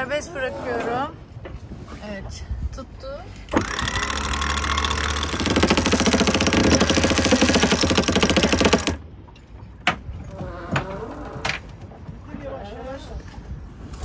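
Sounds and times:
rapid winch pawl clicking: 0:03.5 - 0:09.0
winch motor hum: 0:03.6 - 0:09.0.

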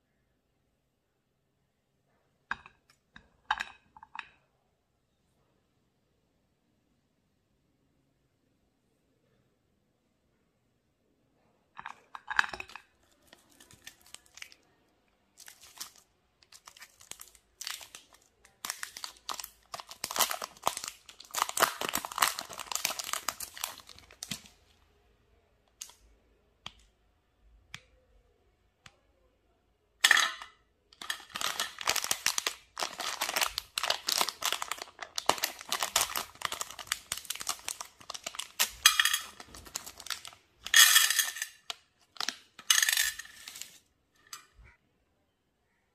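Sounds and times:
plastic wrappers crinkling and tearing: 0:12.6 - 0:14.7, 0:15.3 - 0:24.6, 0:31.0 - 0:43.8.

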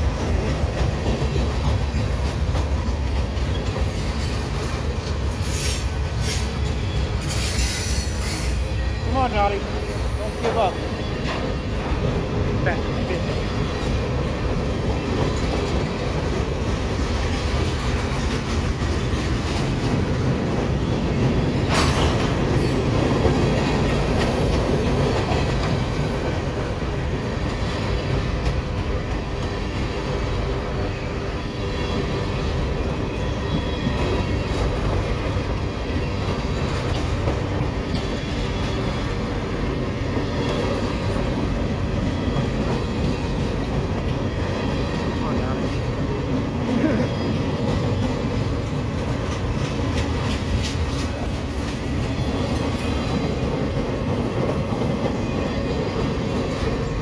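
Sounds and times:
freight train wheels rumbling: 0:00.0 - 0:57.0.

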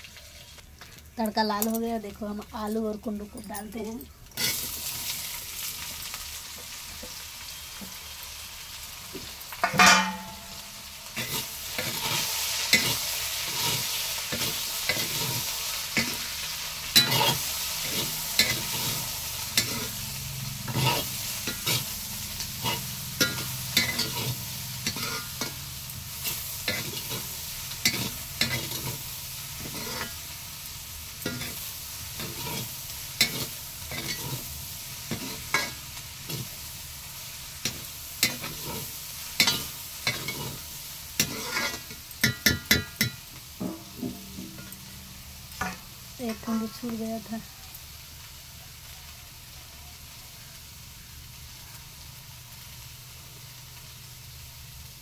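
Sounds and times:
vegetables sizzling in oil: 0:00.0 - 0:55.0
spatula scraping a pan: 0:04.4 - 0:05.2, 0:11.2 - 0:25.6, 0:26.2 - 0:30.4, 0:31.2 - 0:36.6, 0:37.6 - 0:45.9
loud metal clank: 0:09.6 - 0:10.6, 0:43.5 - 0:46.0.

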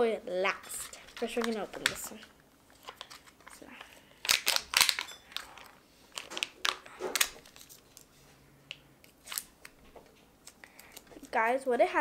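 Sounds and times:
foil seal crinkling and tearing: 0:00.9 - 0:08.1.

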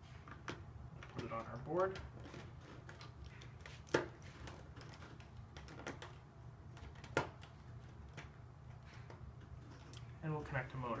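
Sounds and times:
plastic parts clicking and knocking: 0:00.2 - 0:10.0.

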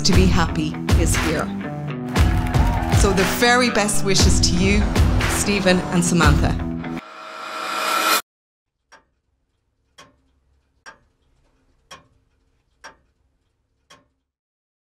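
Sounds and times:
clock ticking: 0:09.9 - 0:13.2, 0:13.8 - 0:14.2.

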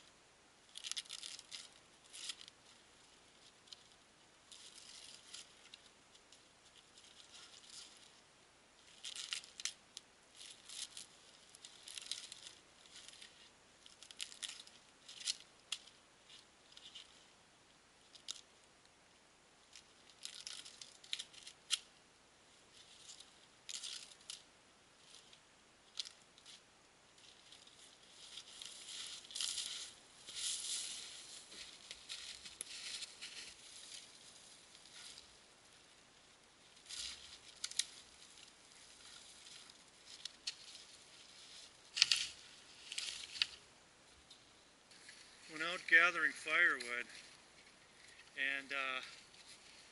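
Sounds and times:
bark being peeled and torn: 0:00.7 - 0:02.5, 0:36.8 - 0:43.6.

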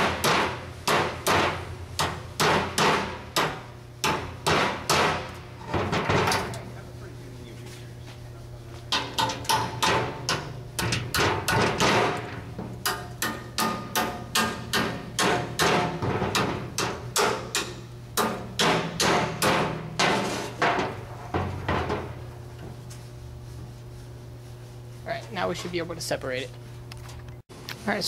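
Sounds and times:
hammer striking steel chisel: 0:00.0 - 0:05.3, 0:08.9 - 0:12.2, 0:12.8 - 0:20.2.

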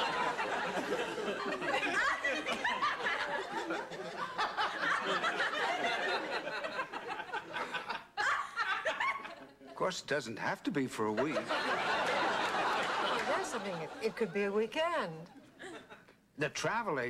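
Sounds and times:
audience laughing: 0:00.0 - 0:09.8, 0:11.0 - 0:14.7.

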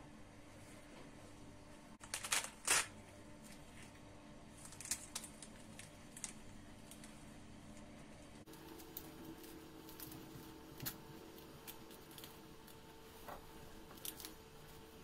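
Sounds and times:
pomegranate rind crackling and tearing: 0:04.6 - 0:07.2.

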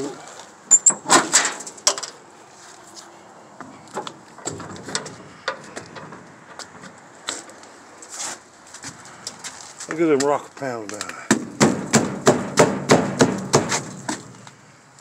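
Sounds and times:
footsteps: 0:02.5 - 0:11.5, 0:13.6 - 0:15.0.

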